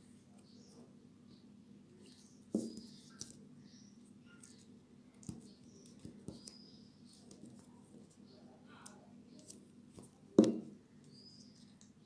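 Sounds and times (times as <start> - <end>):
soft knocks on table: 10.4 - 10.7.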